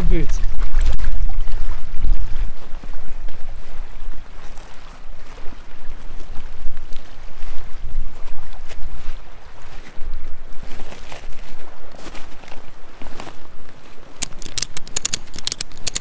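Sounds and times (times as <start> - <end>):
small lake waves: 0.0 - 16.0
wind buffeting microphone: 0.0 - 16.0
inflatable kayak crinkling: 6.0 - 16.0.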